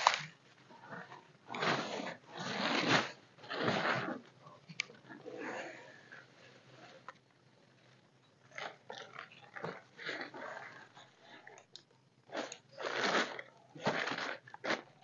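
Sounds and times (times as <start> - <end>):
plastic tarp crinkling: 0.0 - 0.3, 12.3 - 15.0.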